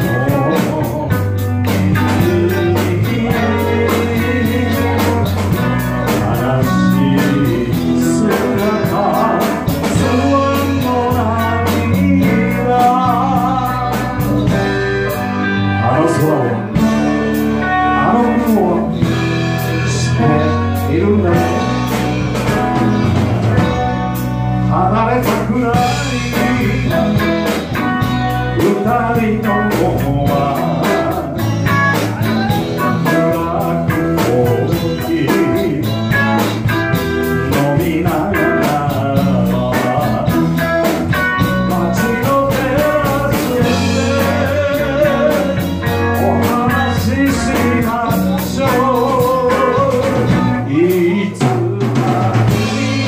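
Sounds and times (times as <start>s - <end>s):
drums playing steady beat: 0.0s - 15.7s, 16.7s - 53.0s
electric guitar: 0.0s - 53.0s
person singing: 0.0s - 53.0s.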